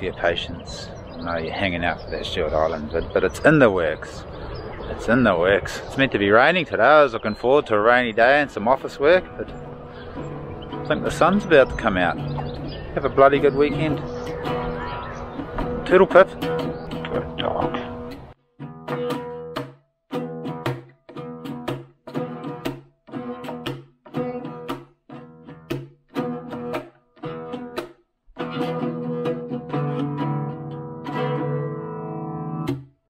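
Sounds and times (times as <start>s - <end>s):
small acoustic guitar strumming: 7.8s - 33.0s.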